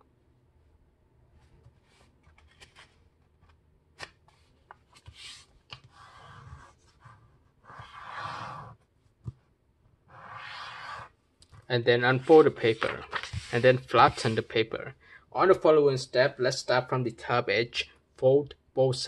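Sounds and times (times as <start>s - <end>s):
paper rustling and folding: 1.5s - 5.9s, 12.1s - 14.6s
fingers swishing along paper: 12.1s - 14.4s.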